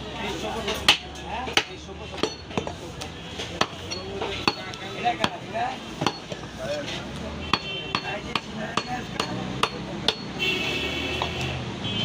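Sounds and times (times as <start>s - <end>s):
knife chopping meat on wood block: 3.6s - 5.4s, 7.5s - 10.3s.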